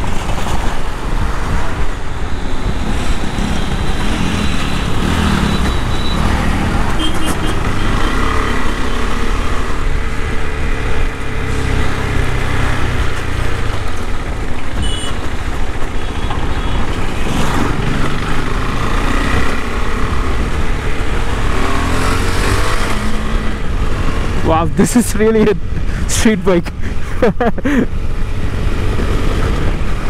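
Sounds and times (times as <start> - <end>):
road and wind noise: 0.0 - 30.0.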